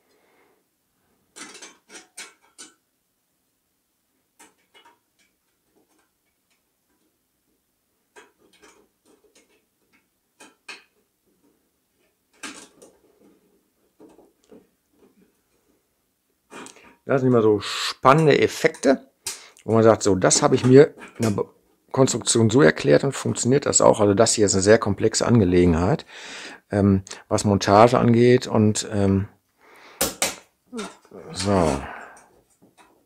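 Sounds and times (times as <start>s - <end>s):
sheet metal parts clicking: 1.3s - 2.8s, 4.3s - 7.2s, 8.1s - 15.2s.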